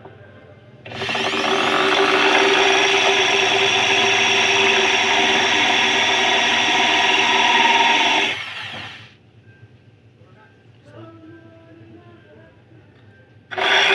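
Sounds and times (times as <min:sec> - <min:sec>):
electric drill grinding glass: 0:00.9 - 0:09.1, 0:13.5 - 0:13.9.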